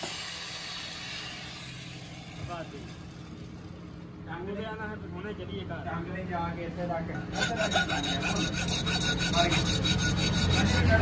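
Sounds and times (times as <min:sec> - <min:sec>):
hand file rasping on metal: 0:07.3 - 0:11.0.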